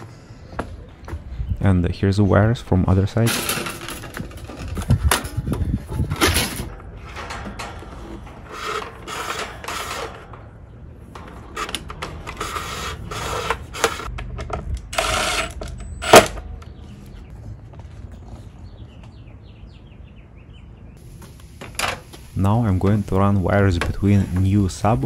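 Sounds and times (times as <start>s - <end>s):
wire rubbing and scraping: 3.3s - 14.1s.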